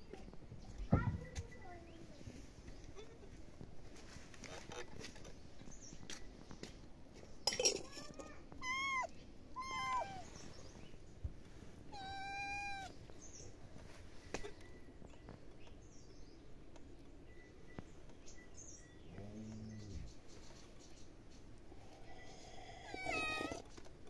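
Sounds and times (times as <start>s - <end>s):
kittens meowing: 8.5s - 10.4s, 11.9s - 13.0s, 22.5s - 23.7s.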